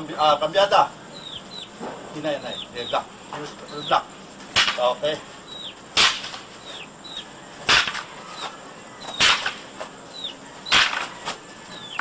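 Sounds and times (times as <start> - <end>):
wooden sticks clacking: 7.7 - 9.9.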